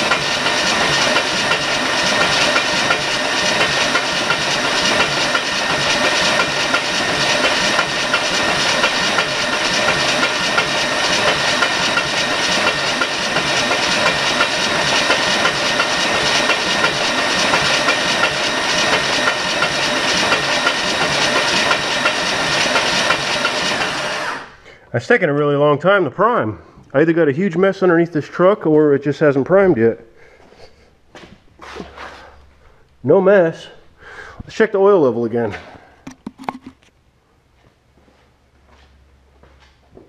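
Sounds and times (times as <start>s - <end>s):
starter motor cranking engine: 0.0s - 24.7s.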